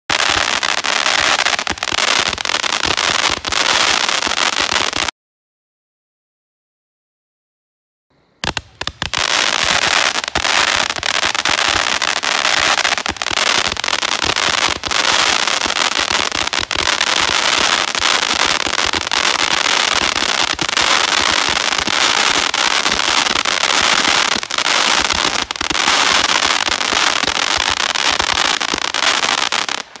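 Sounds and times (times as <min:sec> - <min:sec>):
fireworks crackling: 0:00.1 - 0:05.1, 0:08.4 - 0:30.0
fireworks launching: 0:00.1 - 0:05.1, 0:08.4 - 0:30.0.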